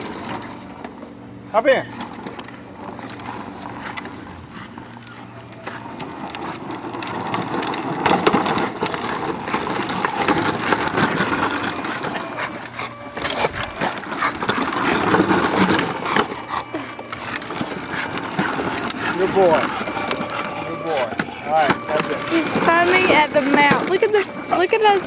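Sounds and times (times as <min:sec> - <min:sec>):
electric motor whine: 0:00.0 - 0:25.0
plastic wheels rumbling over ground: 0:00.0 - 0:25.0.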